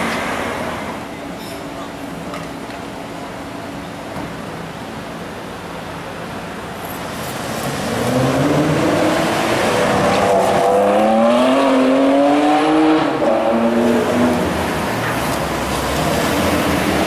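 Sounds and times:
car engine accelerating hard: 7.3s - 17.0s.

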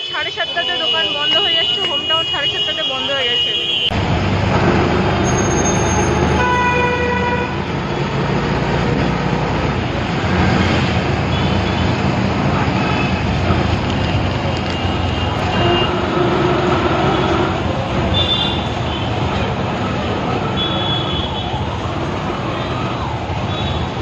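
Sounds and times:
car horn beeps: 0.0s - 4.0s, 14.6s - 16.0s
vehicle engine and road noise: 0.0s - 24.0s.

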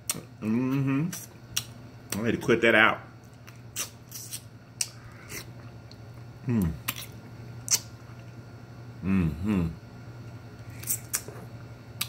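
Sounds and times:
short falling vocal sound: 9.0s - 9.8s.

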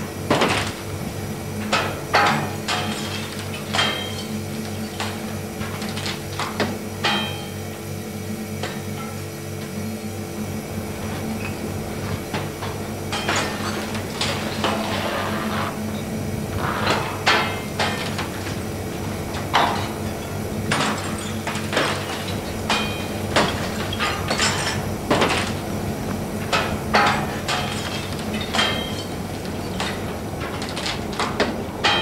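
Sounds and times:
steady low hum: 0.0s - 32.0s
junk smashing and clattering: 19.4s - 25.7s.

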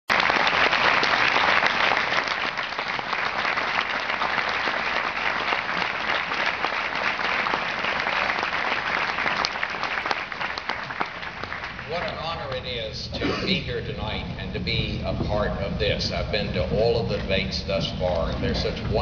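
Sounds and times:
large audience applauding: 0.1s - 12.8s.

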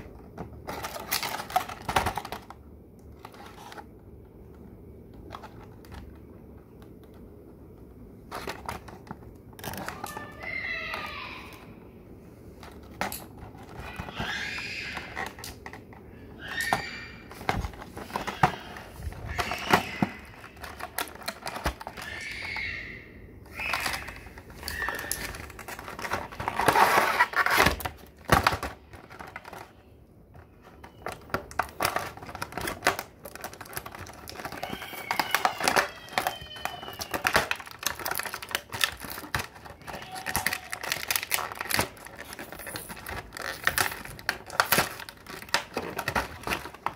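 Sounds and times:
plastic rubbing squeaks: 0.0s - 4.0s, 12.7s - 46.9s
plastic bag crinkling: 23.5s - 46.9s.

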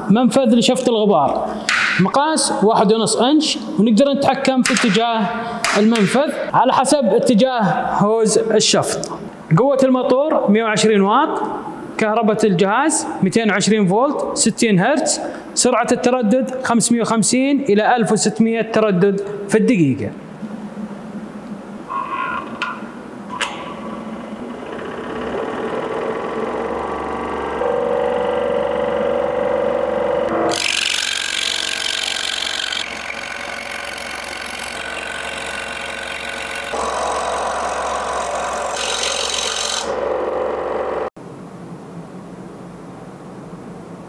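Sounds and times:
scroll saw cutting wood: 23.7s - 41.1s.

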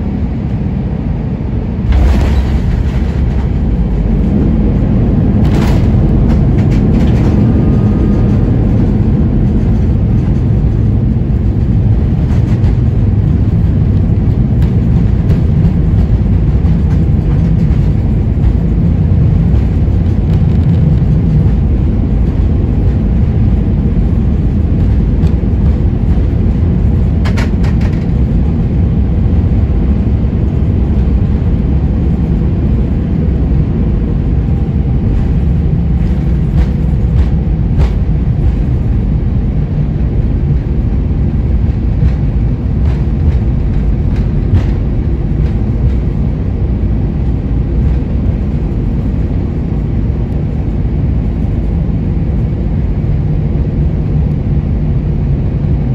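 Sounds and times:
engine and wheel rumble: 0.0s - 55.9s.

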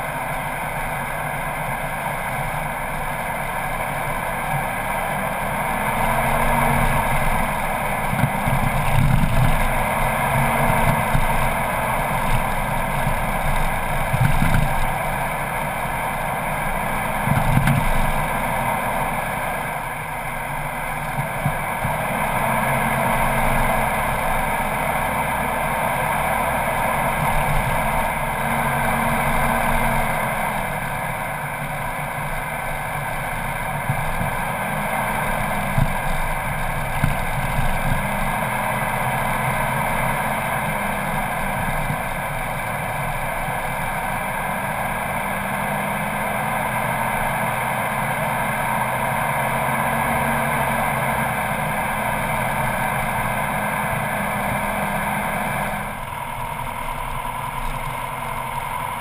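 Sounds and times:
vehicle engine and tyre noise: 0.0s - 59.0s
vehicle jolting over bumps: 6.0s - 18.6s.

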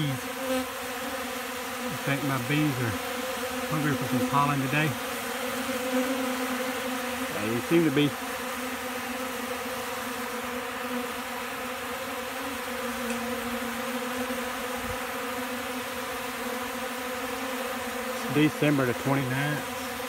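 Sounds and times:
honeybees buzzing: 0.0s - 20.0s.

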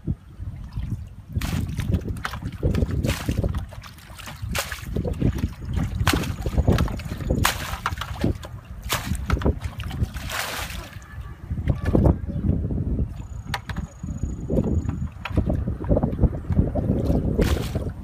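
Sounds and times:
water sloshing in bucket: 0.6s - 12.1s, 13.1s - 18.0s
water splashing on ground: 1.3s - 11.1s, 16.9s - 18.0s.

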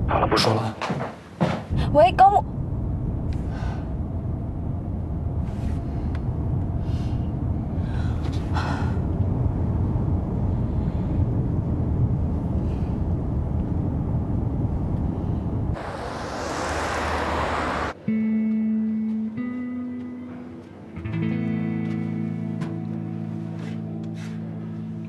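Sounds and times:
car cabin road rumble: 1.6s - 18.0s.

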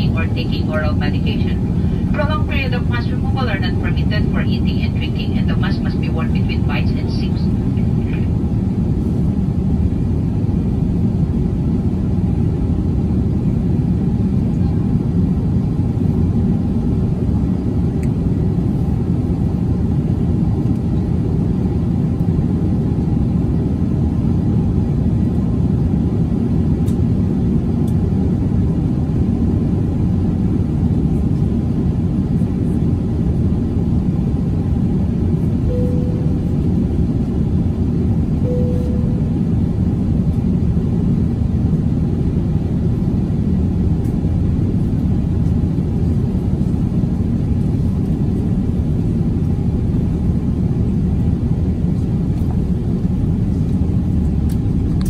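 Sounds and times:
airliner cabin roar: 0.0s - 55.0s
brief cabin tones: 35.7s - 36.7s, 38.5s - 39.4s.

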